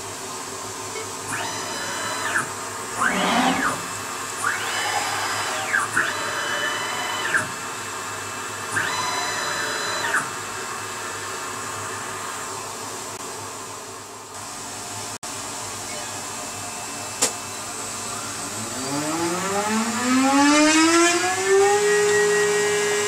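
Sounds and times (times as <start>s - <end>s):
router spindle whine: 1.3s - 7.6s, 8.7s - 10.4s
dust extractor running: 1.4s - 12.2s, 17.8s - 23.0s.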